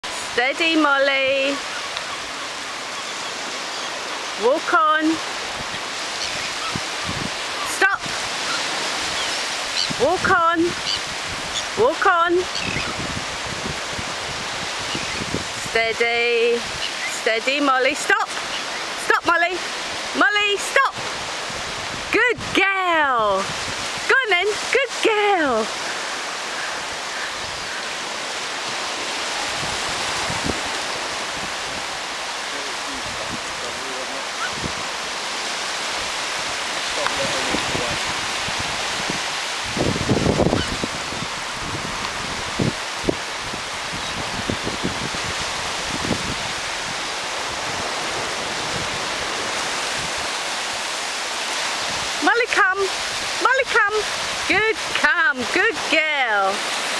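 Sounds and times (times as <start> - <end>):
surf washing over sand: 0.0 - 56.9
wind: 0.0 - 56.9
wind buffeting microphone: 5.2 - 17.0, 20.8 - 56.0.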